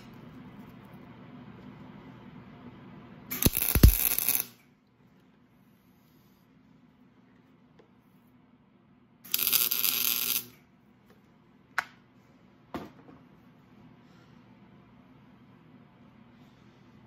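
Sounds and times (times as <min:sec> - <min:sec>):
welding arc crackling: 0:03.3 - 0:04.6, 0:09.3 - 0:10.6.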